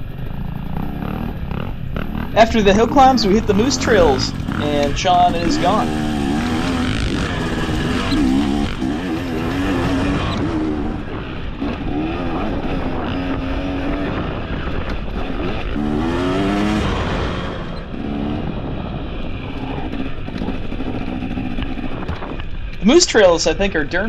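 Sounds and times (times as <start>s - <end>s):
dirt bike engine revving: 0.0s - 22.6s
steady rushing noise: 0.0s - 24.0s.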